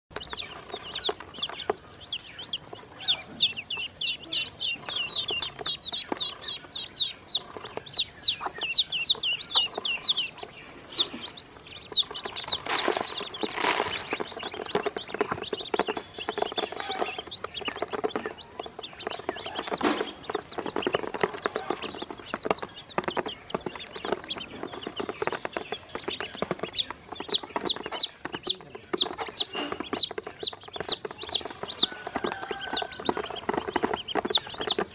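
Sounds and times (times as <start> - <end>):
beaks pecking on plastic basin: 0.1 - 34.9
chicks and ducklings peeping: 0.1 - 34.9.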